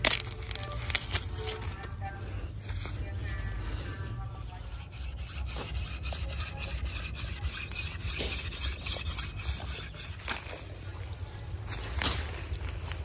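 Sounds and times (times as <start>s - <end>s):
dry corn husks rustling: 0.0s - 4.0s, 7.0s - 13.0s.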